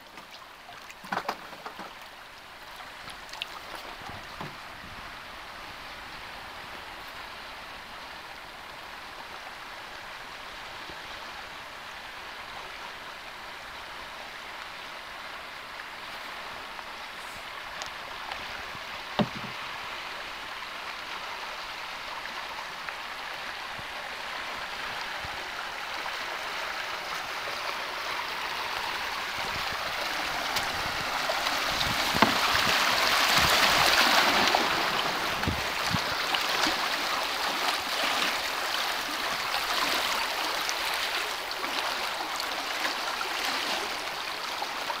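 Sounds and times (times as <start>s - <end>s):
rushing river water: 0.0s - 45.0s
knocks on canoe: 4.1s - 4.6s, 19.2s - 19.6s, 32.1s - 32.7s.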